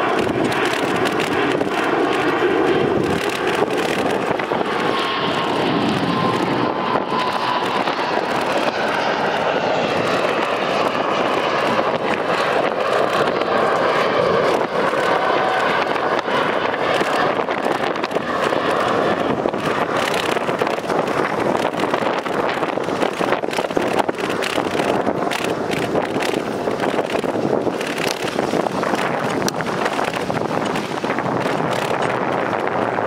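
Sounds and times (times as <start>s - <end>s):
small clicks: 0.0s - 10.7s, 19.6s - 32.2s
bicycle rolling noise: 0.0s - 33.0s
wind on microphone: 0.0s - 33.0s.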